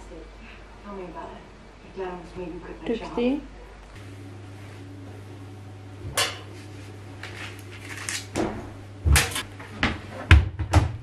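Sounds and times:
washing machine door knocks: 8.4s - 11.0s.

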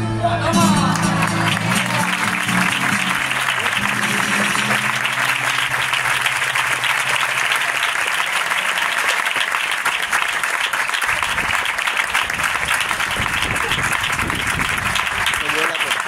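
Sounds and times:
held guitar note: 0.5s - 7.8s
audience applauding: 0.6s - 16.0s.

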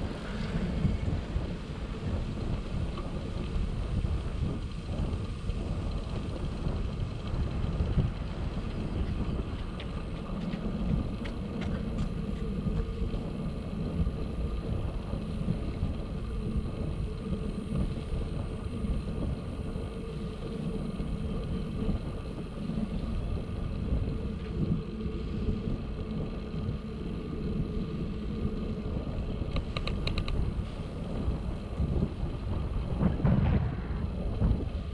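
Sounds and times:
bicycle tyres rumbling: 0.0s - 34.9s
wind on microphone: 0.0s - 34.9s
quick run of clicks: 29.5s - 30.4s.

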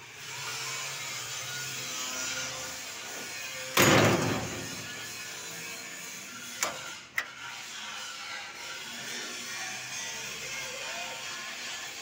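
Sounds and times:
metal gate scraping: 3.1s - 8.6s
metal gate rattling clatter: 3.8s - 5.0s.

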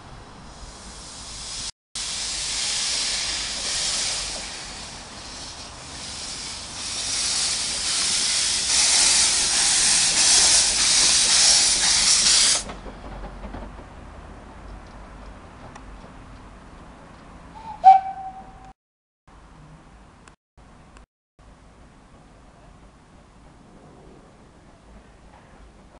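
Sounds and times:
steam locomotive hissing: 0.4s - 12.9s.

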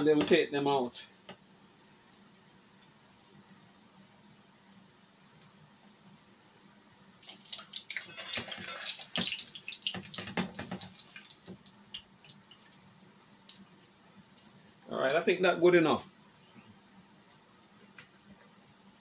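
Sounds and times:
plantain frying in hot oil: 7.1s - 15.5s.

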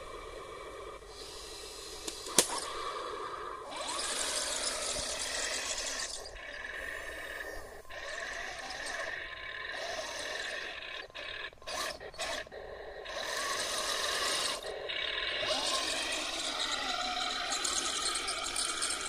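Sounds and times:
toy tank tracks grinding: 1.9s - 2.9s, 3.6s - 19.0s.

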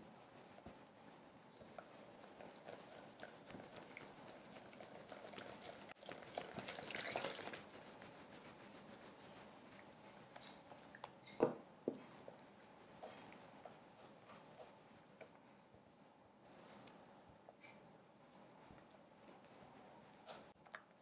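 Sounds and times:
water pouring into bowl: 2.1s - 7.7s.

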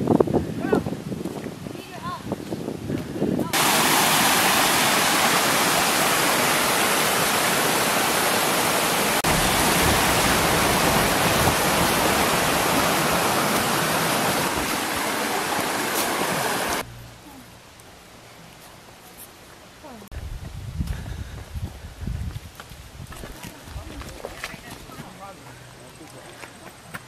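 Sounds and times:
waterfall rushing over rocks: 3.6s - 16.8s.

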